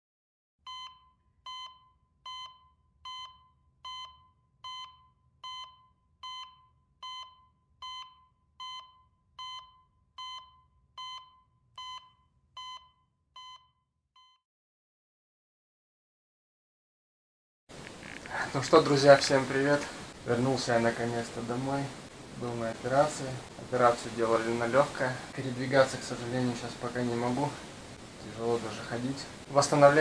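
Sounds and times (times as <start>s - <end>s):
heart monitor beeps: 0.6s - 14.4s.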